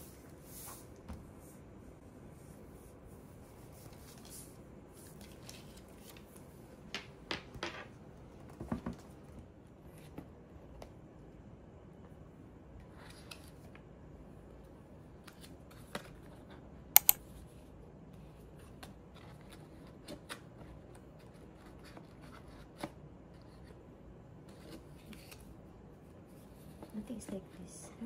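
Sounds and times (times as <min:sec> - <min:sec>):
paper rustling: 0:03.6 - 0:06.6
clicks and taps: 0:17.0 - 0:17.2.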